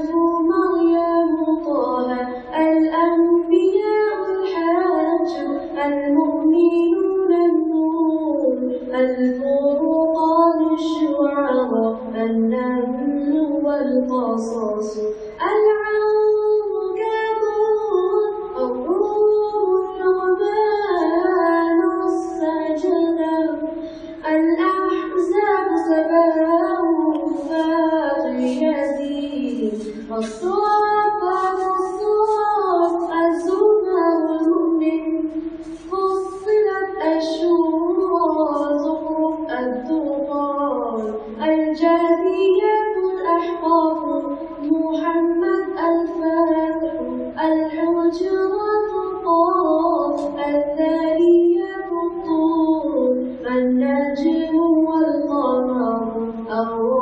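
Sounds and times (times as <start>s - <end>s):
person chanting melodically: 16.9s - 53.0s.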